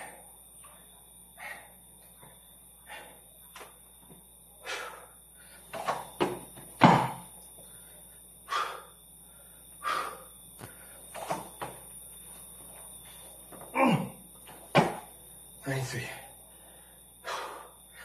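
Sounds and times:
man breathing hard: 1.3 - 1.9, 2.8 - 3.4, 4.6 - 5.7, 7.5 - 11.1, 16.0 - 18.0
body thumping on floor: 5.7 - 7.3, 13.5 - 15.1.

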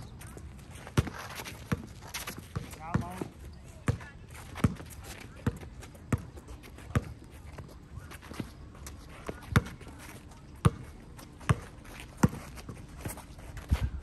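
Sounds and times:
basketball bouncing on court: 0.9 - 6.3, 10.6 - 12.8.

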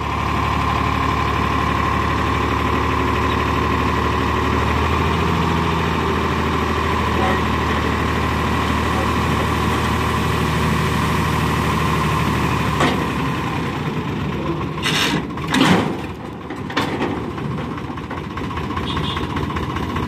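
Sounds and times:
tractor engine running: 0.0 - 20.0.

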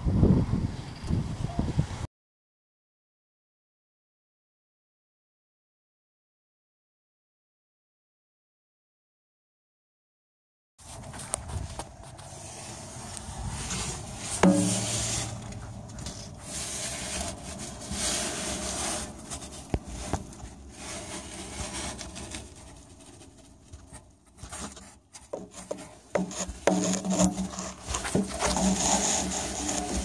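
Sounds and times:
handling noise rubbing and scraping: 10.8 - 30.0.

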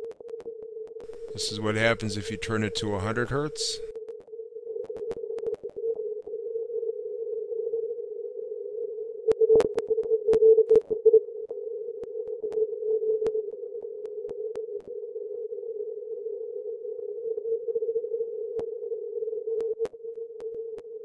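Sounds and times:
radio hiss: 1.1 - 3.9
weak morse code signals: 1.1 - 3.9.

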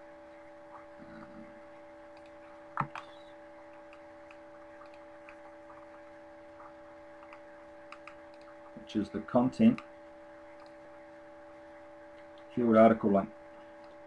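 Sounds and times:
steady electrical hum: 0.0 - 14.0.

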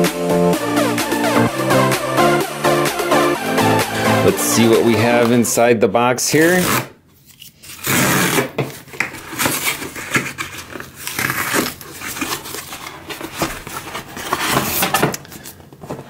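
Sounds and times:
cardboard ripping: 6.4 - 15.2.

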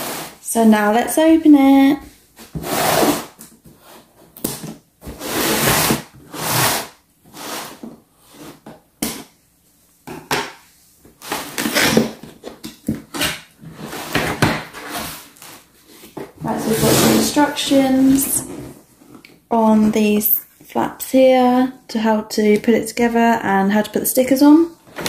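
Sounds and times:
tape and cardboard scraping: 2.4 - 8.7, 11.2 - 19.2.

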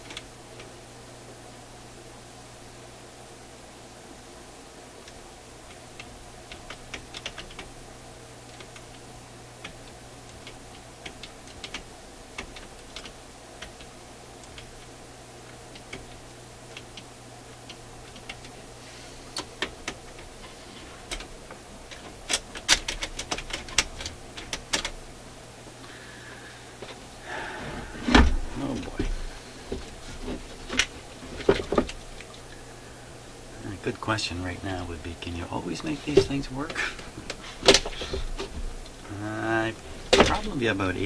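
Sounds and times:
record changer mechanism clicking: 19.3 - 25.0
low hum: 23.6 - 41.0.

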